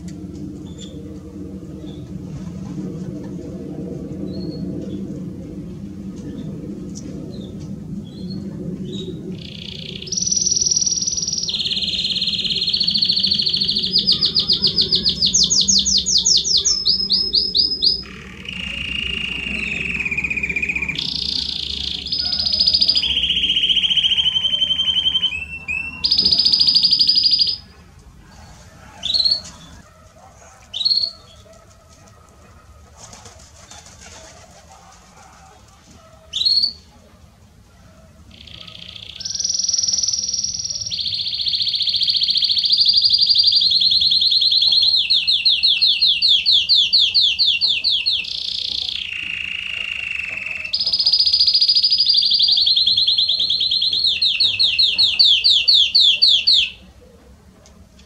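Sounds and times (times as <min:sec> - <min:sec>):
canary singing trills: 0:07.3 - 0:31.5, 0:36.2 - 0:37.0, 0:38.2 - 0:57.0.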